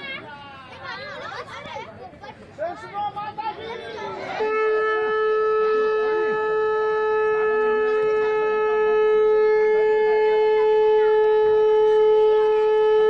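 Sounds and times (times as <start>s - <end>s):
faint crowd chatter: 0.0s - 13.0s
conch shell blown: 4.3s - 13.0s.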